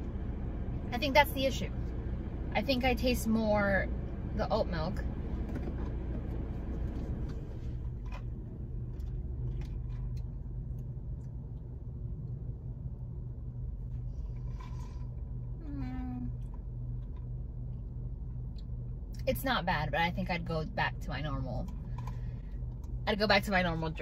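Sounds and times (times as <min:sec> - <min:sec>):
car engine idling hum: 0:00.0 - 0:24.0.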